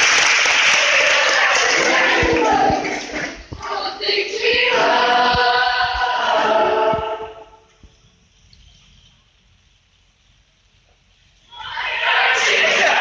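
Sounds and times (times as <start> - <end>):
mixed choir singing: 0.6 - 7.6, 11.5 - 13.0.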